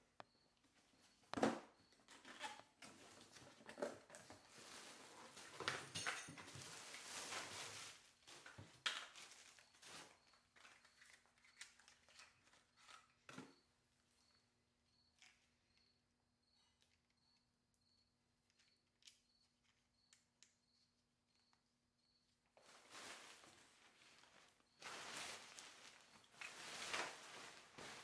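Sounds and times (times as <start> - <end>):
nylon fabric rustling: 22.6 - 28.0
plastic wrap crinkling: 22.6 - 28.0.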